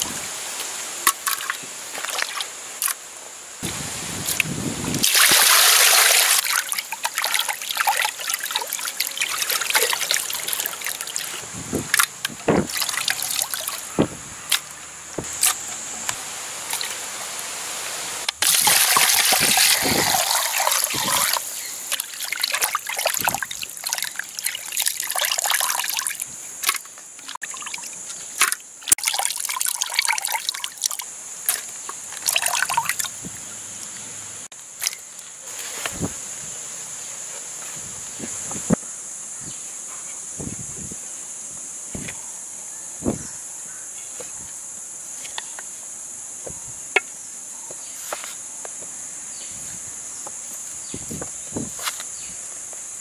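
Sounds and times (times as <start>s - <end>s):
water pouring and splashing: 0.0s - 3.0s, 3.6s - 14.6s, 15.2s - 33.4s
water dripping: 4.2s - 13.9s, 15.4s - 17.0s, 18.2s - 34.0s.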